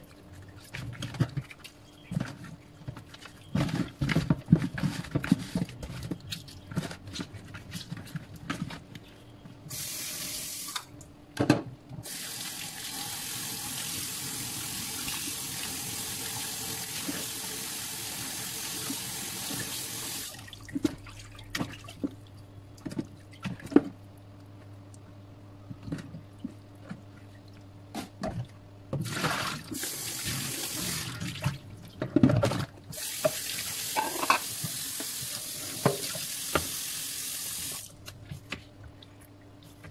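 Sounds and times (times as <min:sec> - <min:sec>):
water splashes and knocks: 0:20.4 - 0:24.0.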